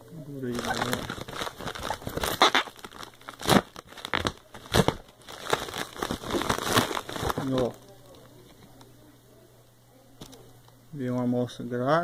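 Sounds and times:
plastic packaging crinkling: 0.4 - 8.9.

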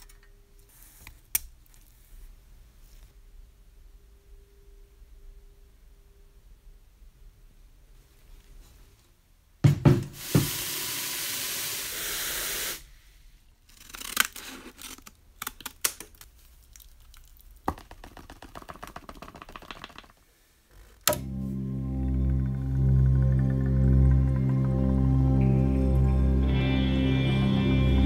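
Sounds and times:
knocks: 9.6 - 10.5.

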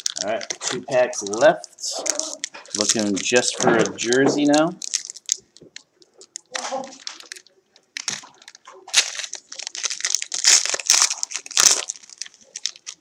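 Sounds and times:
crackly rustles: 0.0 - 13.0
plastic wrapper crinkling and tearing: 0.0 - 13.0.

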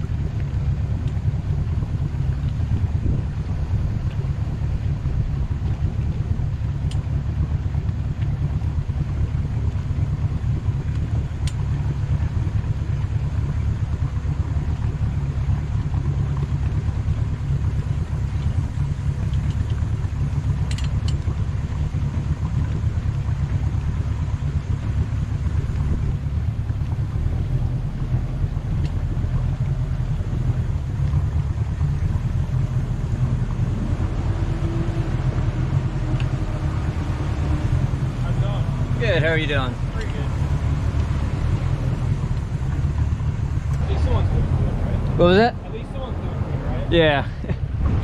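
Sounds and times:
boat engine rumbling: 0.0 - 48.0
faint clicks: 36.1 - 36.4.

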